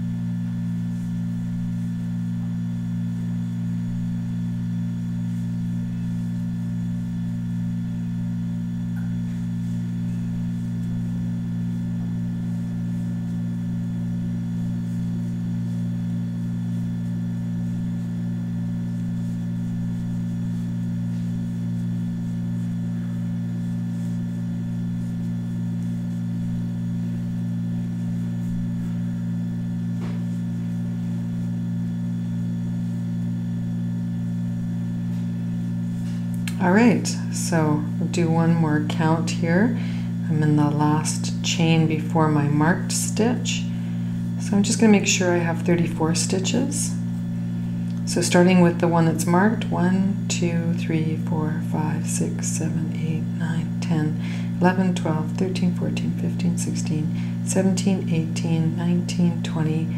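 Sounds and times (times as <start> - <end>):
low drone of held tones: 36.1 - 59.9.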